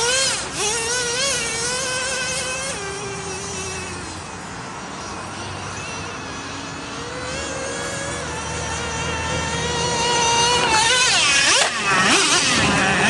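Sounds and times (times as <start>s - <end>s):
rc truck engine buzzing: 0.0s - 13.0s.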